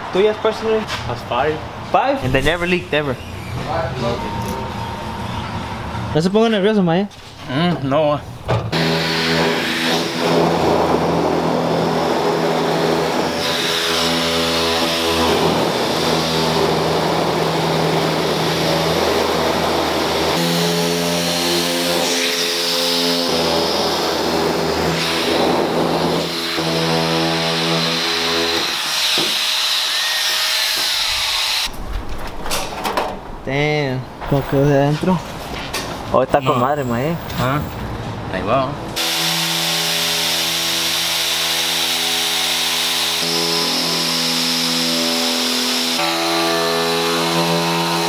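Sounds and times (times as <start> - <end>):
power cutter whine: 8.7 - 31.7, 39.0 - 48.0
rough metal cutting noise: 8.7 - 31.7, 39.0 - 48.0.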